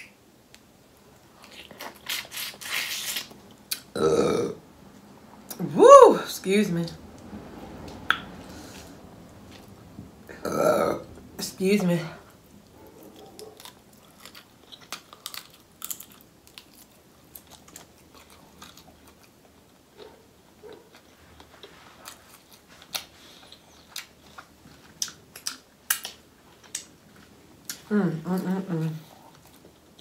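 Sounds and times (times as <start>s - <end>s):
close chewing: 12.5s - 27.9s, 29.0s - 30.0s.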